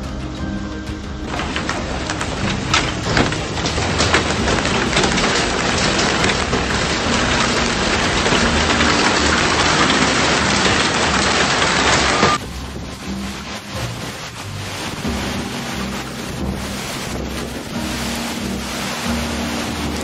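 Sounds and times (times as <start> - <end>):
hailstones pelting down: 0.9 - 20.0.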